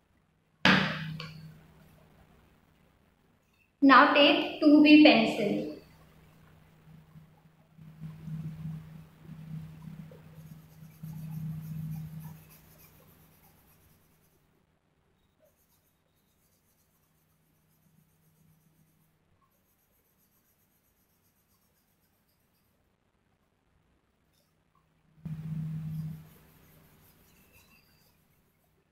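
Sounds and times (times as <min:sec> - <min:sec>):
pencil shading on paper: 0:05.8 - 0:14.5, 0:15.4 - 0:22.8, 0:25.3 - 0:28.9.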